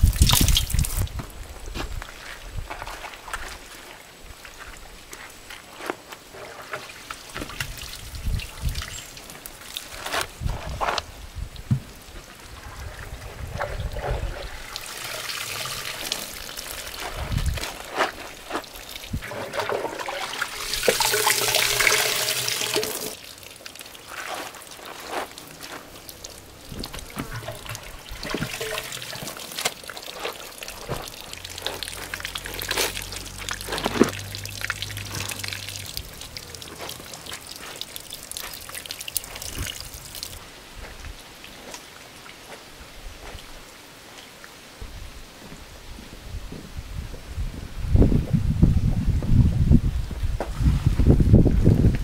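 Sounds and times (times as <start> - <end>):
water pouring: 0.0 - 1.1, 6.4 - 10.8, 12.0 - 40.4.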